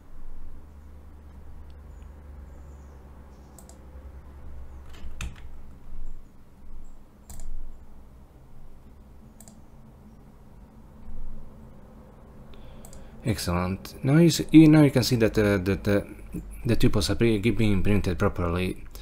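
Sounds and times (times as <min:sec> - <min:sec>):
low steady hum: 0:00.0 - 0:19.0
mouse and keyboard clicks: 0:03.5 - 0:03.8, 0:07.2 - 0:07.6, 0:09.4 - 0:09.6.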